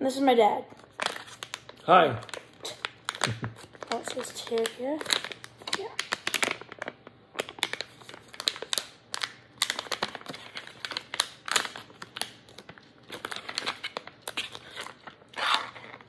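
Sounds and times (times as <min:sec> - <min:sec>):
plastic pouch crinkling: 0:00.8 - 0:16.0.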